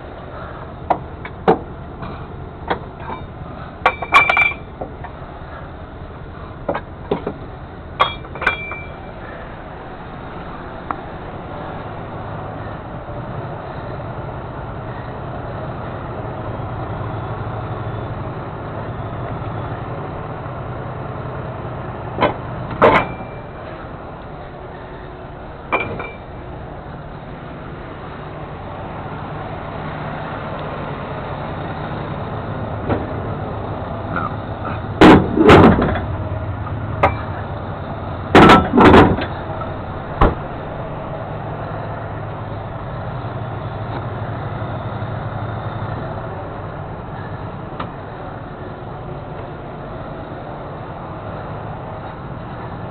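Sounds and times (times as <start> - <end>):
diesel engine running: 0.0 - 52.9
metal bangs and clanks: 0.9 - 4.7, 22.2 - 23.8, 25.7 - 26.3, 34.1 - 36.2, 38.3 - 40.6.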